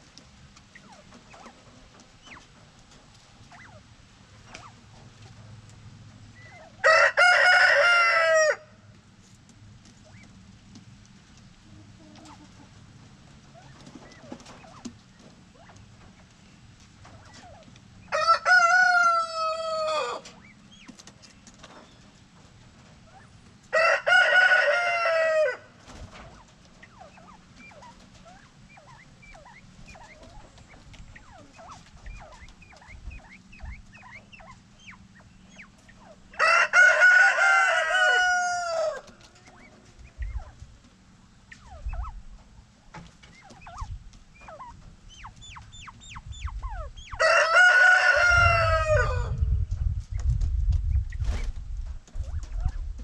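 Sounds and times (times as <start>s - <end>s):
rooster crowing: 6.8s - 8.8s, 18.1s - 20.3s, 23.7s - 25.7s, 36.4s - 39.1s, 47.1s - 49.4s.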